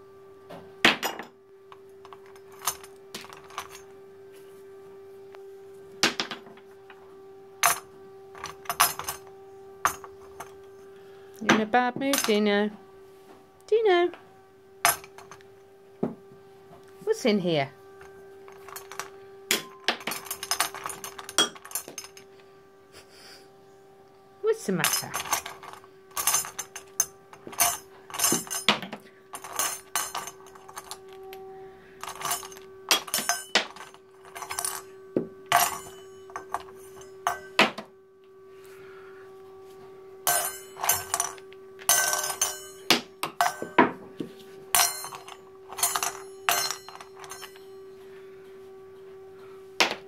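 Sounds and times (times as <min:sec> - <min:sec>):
toys clinking in a metal cup: 0:18.6 - 0:22.2, 0:24.8 - 0:31.1, 0:32.0 - 0:34.8, 0:35.5 - 0:37.5, 0:40.3 - 0:43.8, 0:44.7 - 0:47.6.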